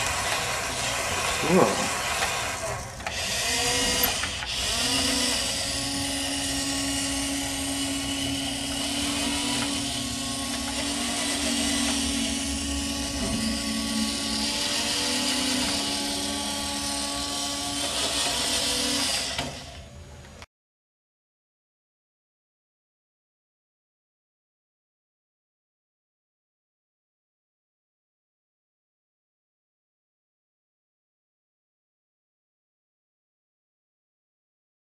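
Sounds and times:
toy robot motors whirring: 0.0 - 20.3.

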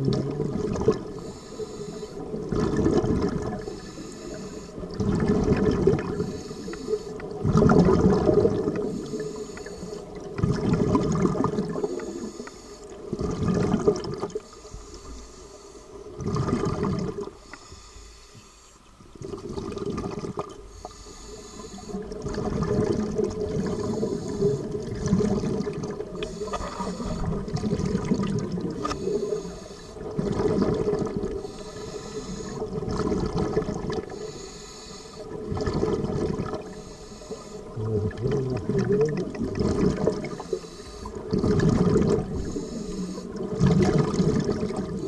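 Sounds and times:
diver breathing through regulator: 1.1 - 2.5, 3.5 - 5.0, 6.0 - 7.4, 8.6 - 10.2, 11.7 - 13.1, 14.4 - 16.1, 17.2 - 18.8, 20.7 - 22.2, 23.6 - 24.9, 26.0 - 27.8, 28.7 - 30.2, 31.3 - 32.8, 34.0 - 35.4, 36.6 - 38.6, 40.0 - 41.4, 42.1 - 43.6.

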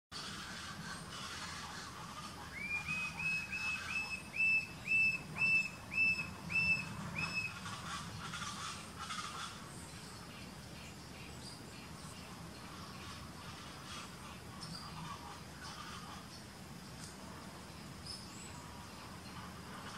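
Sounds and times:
bird whistling calls: 2.5 - 7.8.

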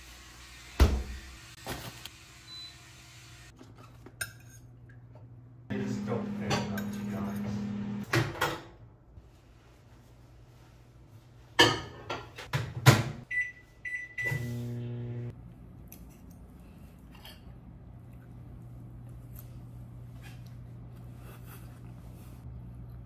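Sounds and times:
motor hum: 5.7 - 8.0, 14.3 - 15.3.

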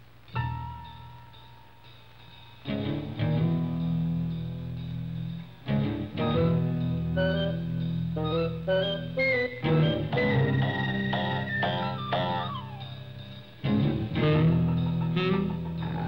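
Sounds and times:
cartoon music with plucked notes: 5.7 - 16.0.

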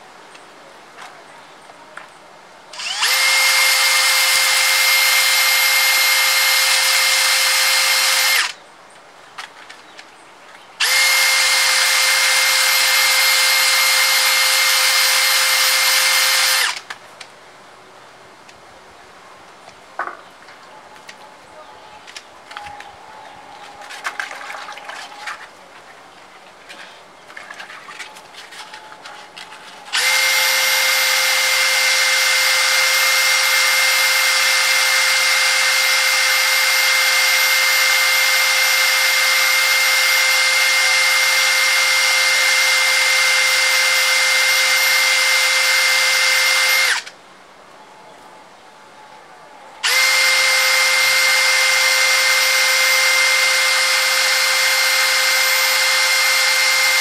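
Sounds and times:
cordless drill whining: 2.8 - 8.6, 10.8 - 16.9, 29.9 - 47.1, 49.8 - 57.0.

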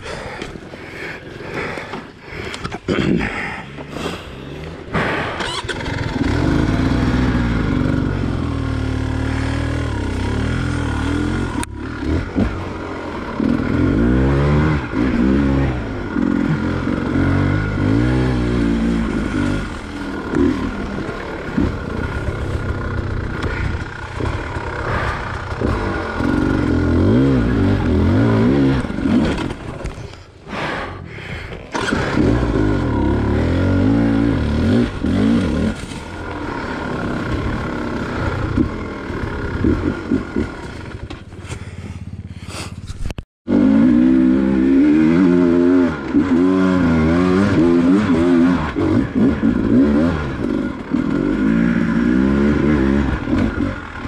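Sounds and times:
dirt bike engine running hard: 0.0 - 54.0.

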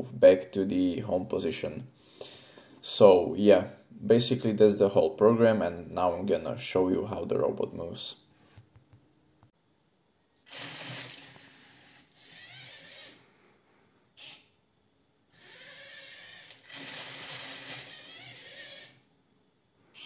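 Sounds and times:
servo motors whirring: 10.5 - 13.2, 15.3 - 19.0.

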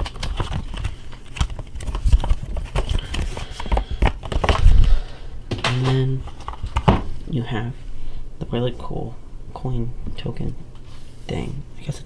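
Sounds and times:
box contents knocking and rustling: 0.0 - 4.8.

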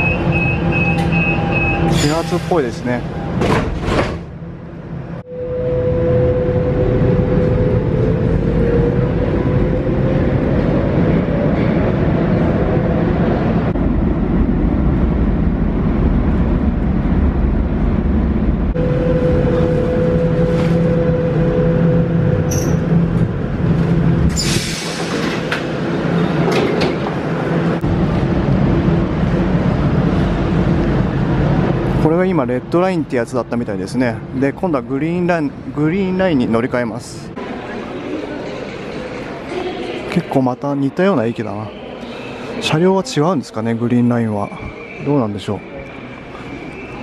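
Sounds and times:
train wheels rumbling on rails: 6.8 - 32.8.

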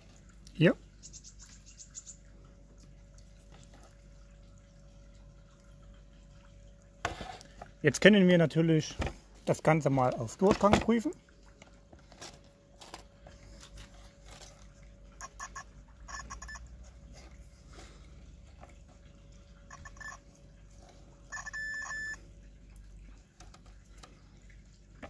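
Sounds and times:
multimeter beeping: 15.2 - 16.6, 19.7 - 20.2, 21.3 - 22.2.

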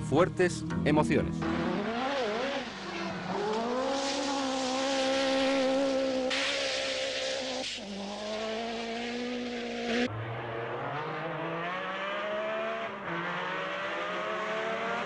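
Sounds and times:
rally car engine at high revs: 1.4 - 15.0
rushing hiss: 2.6 - 9.8.

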